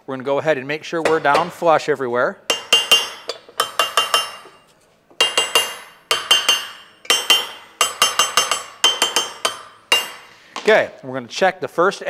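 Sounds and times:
metal knocking on steel plate: 0:02.5 - 0:04.6, 0:05.2 - 0:10.3.

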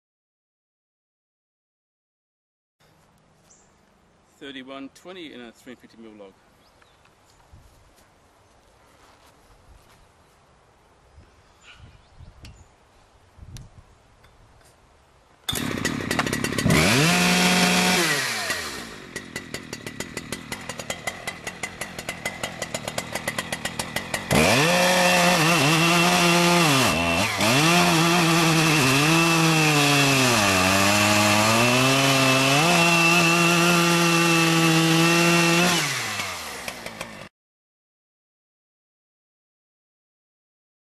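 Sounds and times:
chainsaw revving and cutting log: 0:15.5 - 0:37.3.

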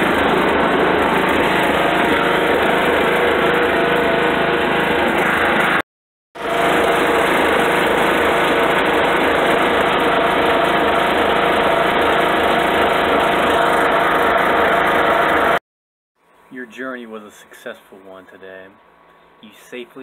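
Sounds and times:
lawn mower engine running: 0:00.0 - 0:05.8, 0:06.4 - 0:15.6.

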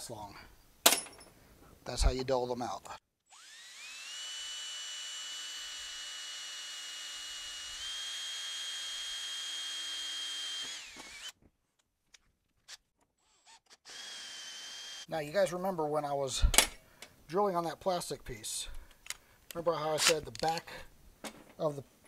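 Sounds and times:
cordless drill drilling metal: 0:03.3 - 0:11.4, 0:13.2 - 0:15.1.

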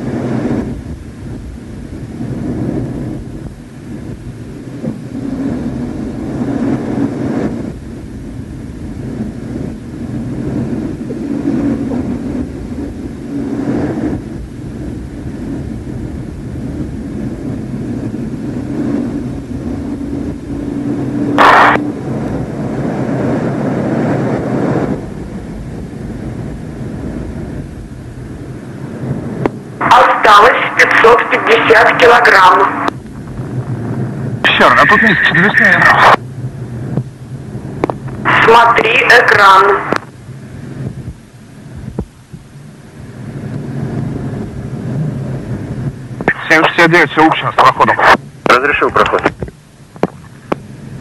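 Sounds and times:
faint hum: 0:00.0 - 0:51.0
jet cockpit noise: 0:20.7 - 0:22.4, 0:29.4 - 0:33.8, 0:34.4 - 0:36.2, 0:37.8 - 0:40.1, 0:46.2 - 0:50.7
short sharp noise: 0:21.4 - 0:21.8.

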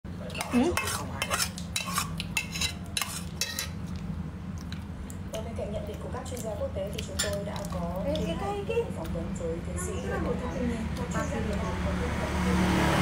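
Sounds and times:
steady low hum: 0:00.1 - 0:13.0
cutlery clinking against dishes: 0:00.3 - 0:03.8, 0:07.0 - 0:07.4.

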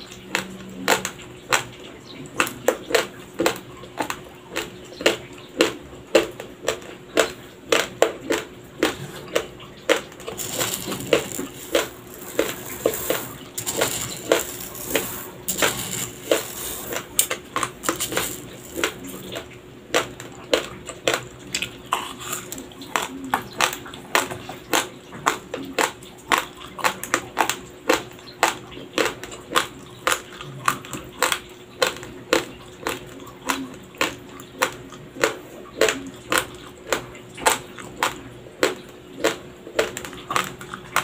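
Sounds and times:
crunching dry rice grains: 0:08.2 - 0:20.7
rice grains rustling: 0:10.3 - 0:19.3.

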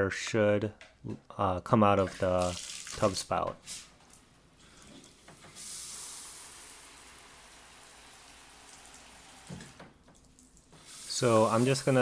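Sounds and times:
shower water spray hissing: 0:05.5 - 0:09.8, 0:10.8 - 0:12.0.

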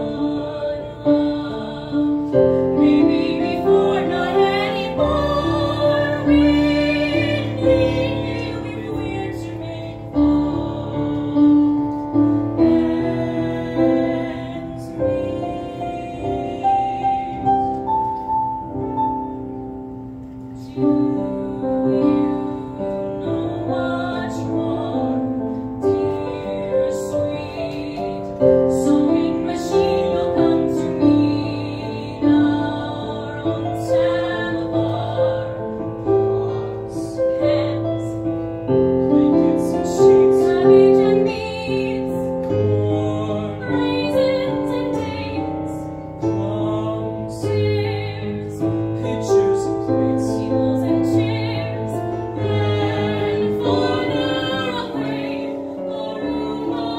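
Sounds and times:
piano accompaniment: 0:00.0 - 0:56.9
woman singing with vibrato: 0:39.2 - 0:56.9.

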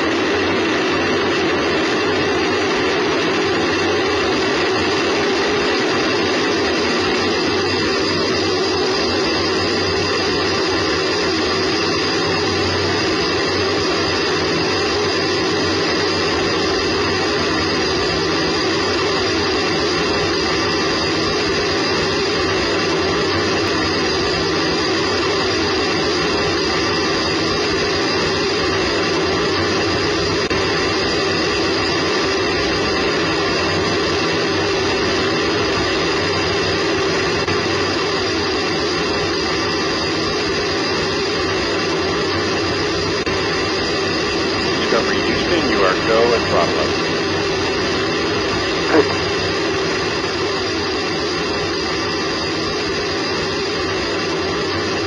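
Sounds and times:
rocket booster roaring: 0:42.4 - 0:50.9.

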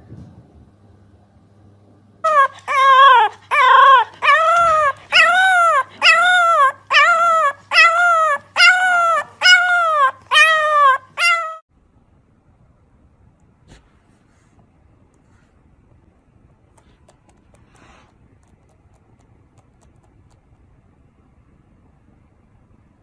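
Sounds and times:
puppy howling yelps: 0:02.3 - 0:11.6.

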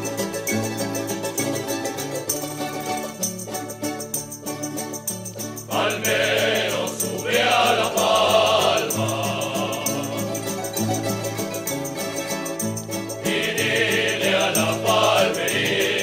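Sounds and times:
shaker-like ticking: 0:00.0 - 0:16.0
voices singing together: 0:05.6 - 0:12.4, 0:13.0 - 0:16.0.

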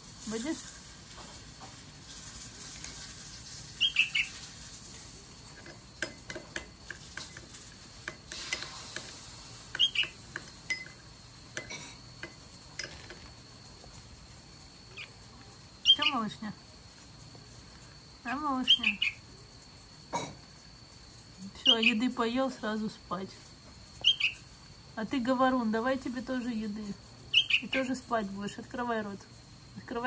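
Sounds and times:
fledgling birds begging chirps: 0:03.6 - 0:04.6, 0:09.6 - 0:11.4, 0:14.6 - 0:16.4, 0:18.2 - 0:19.4, 0:21.6 - 0:22.2, 0:24.0 - 0:24.6, 0:27.2 - 0:28.0
spoon tapping a dish: 0:05.6 - 0:13.2.

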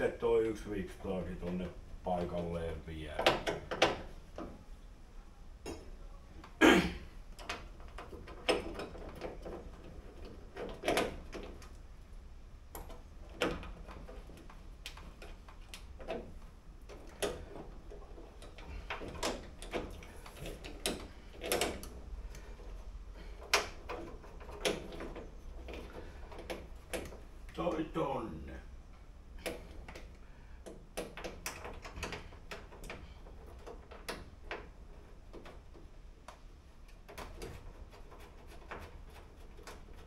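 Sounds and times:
metal clicks and knocks: 0:03.1 - 0:04.6, 0:07.3 - 0:11.8, 0:12.7 - 0:27.9, 0:29.4 - 0:40.0.

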